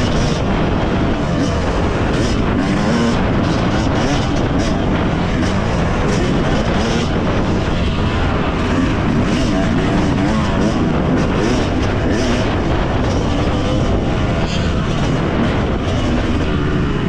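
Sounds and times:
motocross bike engine revving: 0:00.0 - 0:17.0
wind on microphone: 0:00.0 - 0:17.0.

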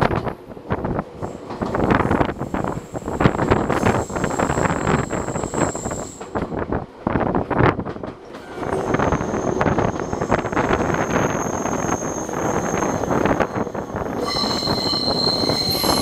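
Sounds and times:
train wheels rumbling on rails: 0:00.0 - 0:16.0
high wheel squeal: 0:02.8 - 0:06.2, 0:08.5 - 0:16.0.

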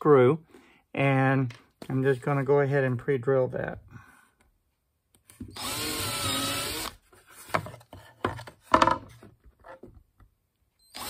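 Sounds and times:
cordless drill boring into wood: 0:05.5 - 0:07.0, 0:10.8 - 0:11.0.

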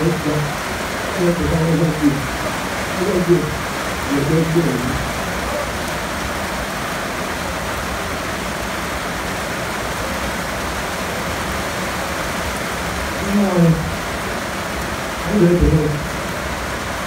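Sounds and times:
steady rushing hiss: 0:00.0 - 0:17.0.

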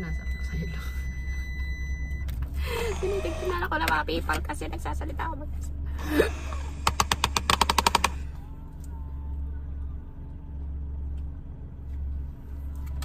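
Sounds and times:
car engine idling: 0:00.0 - 0:13.0
car starter cranking: 0:01.6 - 0:04.6, 0:06.0 - 0:08.4.

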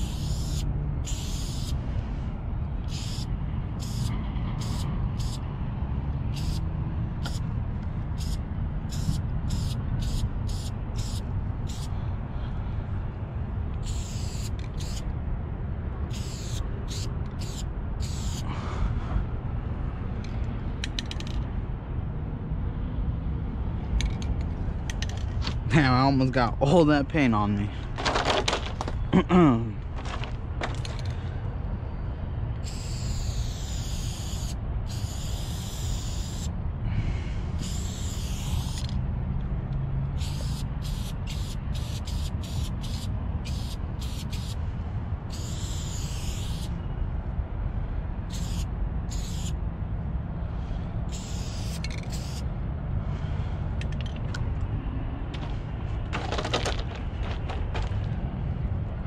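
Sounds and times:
spray-paint can hissing: 0:00.0 - 0:01.8, 0:02.9 - 0:05.4, 0:06.4 - 0:06.6, 0:07.2 - 0:07.4, 0:08.2 - 0:11.9, 0:13.8 - 0:15.0, 0:16.1 - 0:18.4, 0:32.6 - 0:36.5, 0:37.6 - 0:38.9, 0:40.2 - 0:44.6, 0:45.3 - 0:46.7, 0:48.3 - 0:49.6, 0:51.1 - 0:52.4
steady low rumble: 0:00.0 - 0:33.2, 0:35.7 - 0:45.8, 0:46.4 - 0:59.0.

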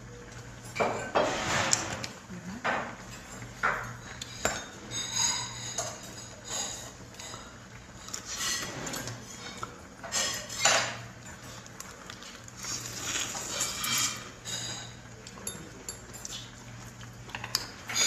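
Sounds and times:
chopsticks and tableware clinking: 0:02.7 - 0:11.7, 0:13.0 - 0:18.0.

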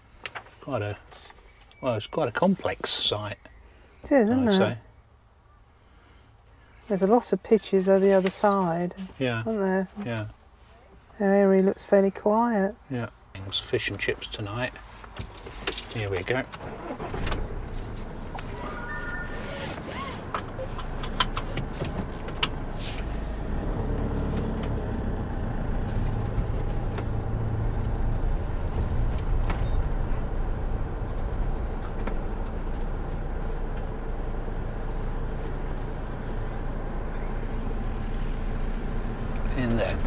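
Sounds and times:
engine rumble inside vehicle cab: 0:13.3 - 0:40.0.

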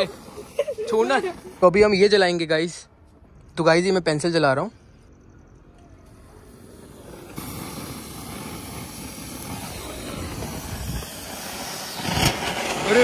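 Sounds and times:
sparkler fizzing: 0:00.0 - 0:02.0, 0:06.0 - 0:13.0.

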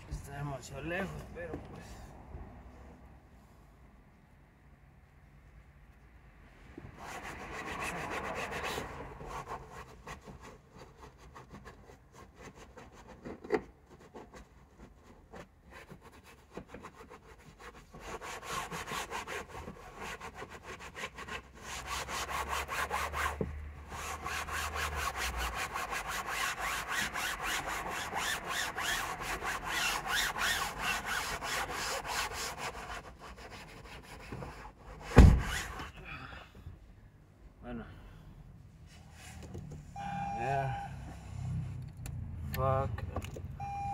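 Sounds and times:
sharp thump: 0:35.1 - 0:35.7.

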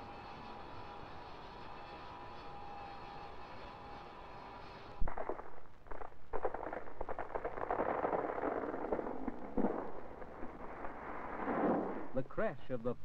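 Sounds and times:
tree crashing down: 0:05.1 - 0:12.2.

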